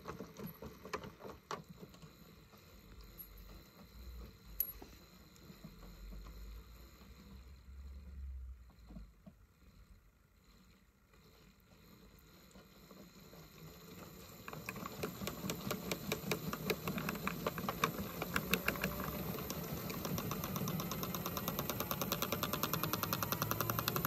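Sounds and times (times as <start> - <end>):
small motor running: 5.4 - 24.0.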